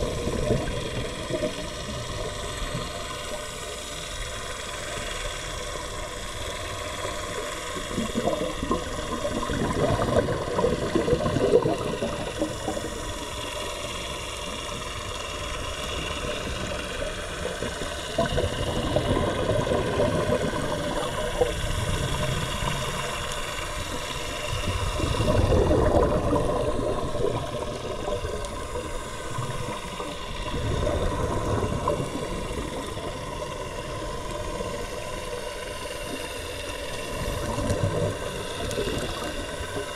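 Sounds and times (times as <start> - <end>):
underwater bubbles from regulators: 0.0 - 39.9
underwater hum: 0.0 - 39.9.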